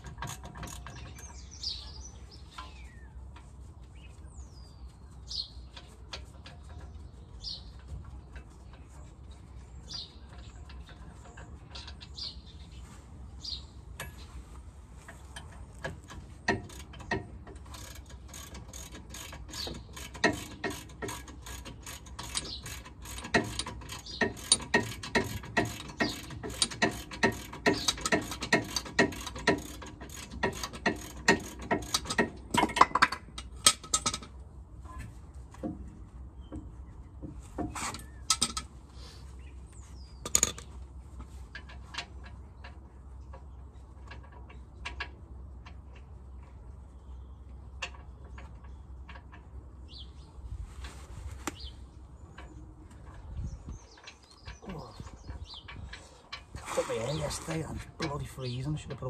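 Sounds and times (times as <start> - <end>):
hand ratchet clicking rapidly: 16.5 - 33.0
metal knocks: 23.1 - 34.4.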